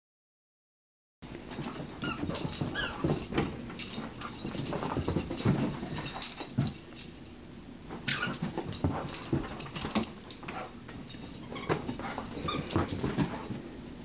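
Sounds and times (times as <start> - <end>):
dog thumping and scuffling: 1.3 - 7.2, 7.8 - 14.0
dog toy squeaking: 2.0 - 3.1.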